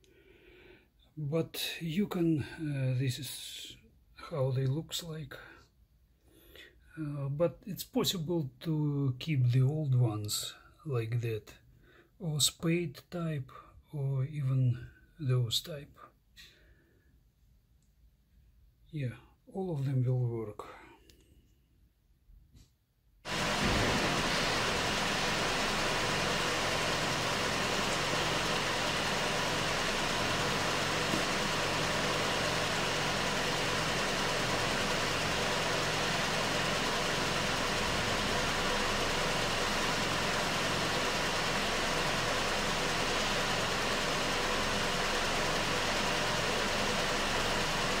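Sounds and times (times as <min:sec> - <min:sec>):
car engine idling: 0:23.3 - 0:48.0.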